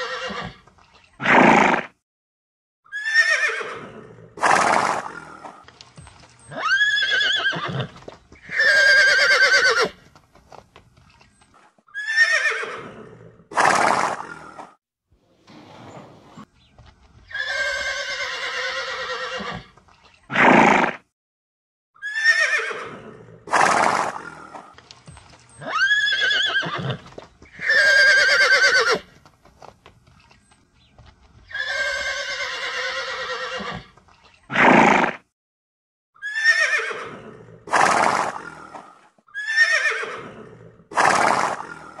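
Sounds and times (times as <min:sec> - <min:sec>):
horses whinnying: 0:00.0 - 0:00.6, 0:01.2 - 0:01.9, 0:02.9 - 0:05.6, 0:06.4 - 0:10.1, 0:11.9 - 0:14.7, 0:15.4 - 0:16.5, 0:17.3 - 0:21.0, 0:22.0 - 0:29.2, 0:31.5 - 0:35.2, 0:36.2 - 0:42.0.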